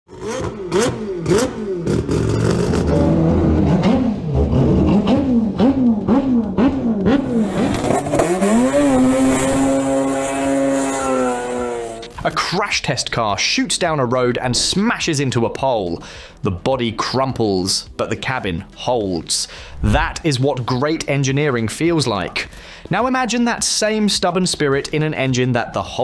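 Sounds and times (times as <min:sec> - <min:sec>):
engine revving hard: 0:00.1 - 0:12.2.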